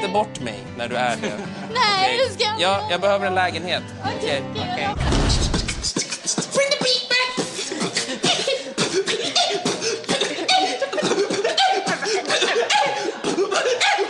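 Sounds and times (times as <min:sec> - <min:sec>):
boys beatboxing: 0:05.3 - 0:14.0.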